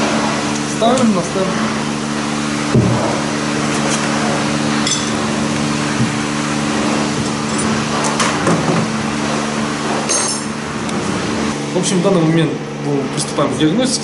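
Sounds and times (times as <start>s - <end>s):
machine hum: 0.0s - 14.0s
metal tools clinking on steel bench: 4.8s - 5.2s, 10.1s - 10.5s.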